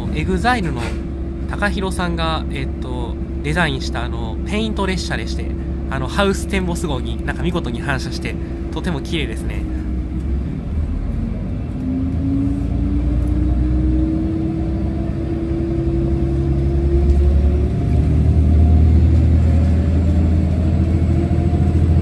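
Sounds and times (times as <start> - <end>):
higher whine rising: 0.0 - 22.0
train running rumble: 0.0 - 22.0
train motor whine: 9.6 - 22.0.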